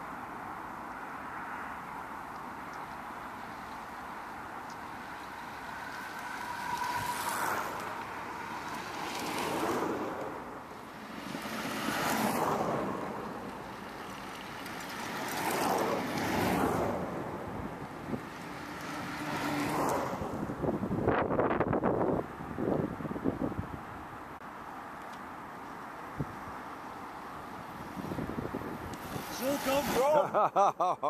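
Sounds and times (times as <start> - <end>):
trikes passing with tyre rush: 0.0 - 31.0
wind on microphone: 20.0 - 24.2, 27.8 - 30.0.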